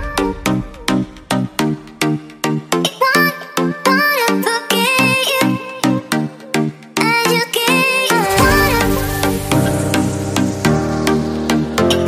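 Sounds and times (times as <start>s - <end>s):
background music with steady beat: 0.0s - 12.0s
gliding lead melody: 8.1s - 12.0s
deep bass line: 8.3s - 12.0s.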